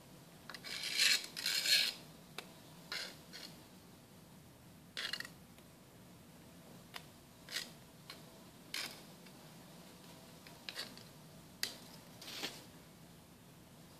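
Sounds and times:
metal tool scraping concrete: 10.7s - 11.0s.

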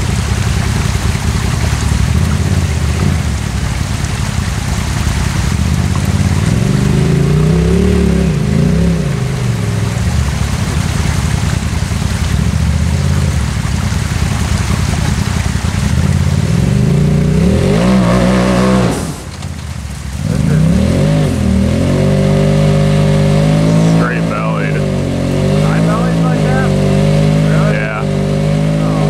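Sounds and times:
engine revving hard: 5.7s - 10.5s, 15.8s - 19.3s, 20.2s - 29.0s.

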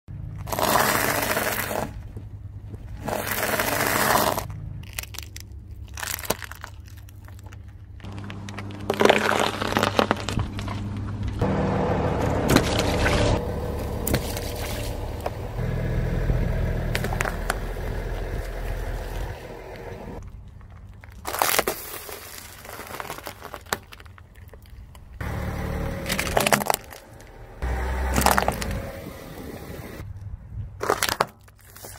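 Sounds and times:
car low rumble: 0.1s - 21.2s, 24.0s - 30.8s
tyre crushing objects: 0.3s - 10.8s, 12.2s - 15.8s, 25.7s - 28.8s
kernels crunching: 2.9s - 11.1s, 16.8s - 28.8s.

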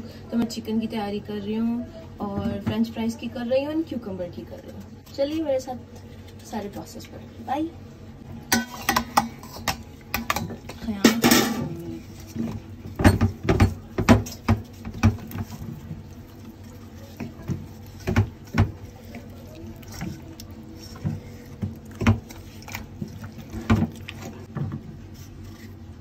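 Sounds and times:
hand mixing raw chicken in bowl: 8.8s - 26.0s.

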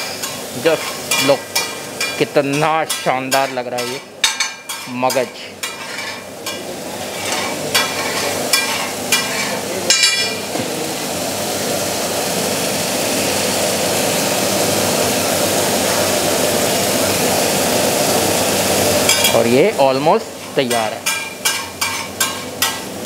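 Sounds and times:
gravy sizzling on iron griddle: 0.0s - 23.0s
metal spatula scraping griddle: 4.6s - 9.6s, 20.4s - 22.8s.

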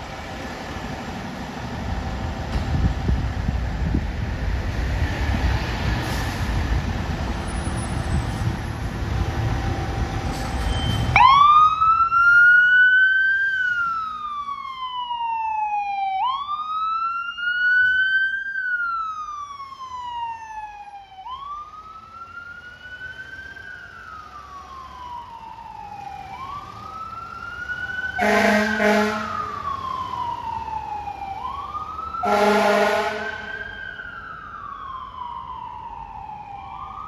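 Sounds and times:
fire engine diesel rumble: 0.0s - 37.0s
siren wailing: 10.9s - 37.0s.

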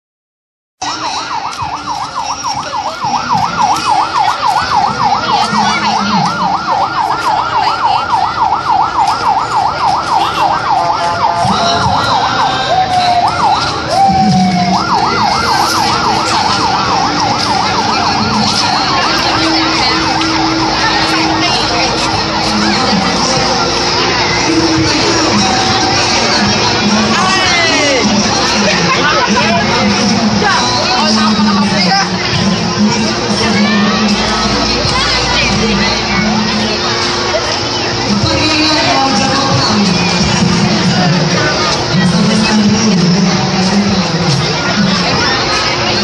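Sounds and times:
crowd noise: 0.8s - 46.0s
vehicle siren yelping: 0.8s - 46.0s.

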